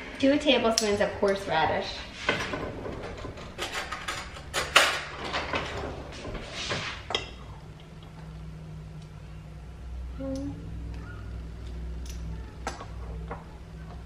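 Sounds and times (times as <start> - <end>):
low steady hum: 0.0 - 14.0
metal cutlery clinking: 3.4 - 5.1.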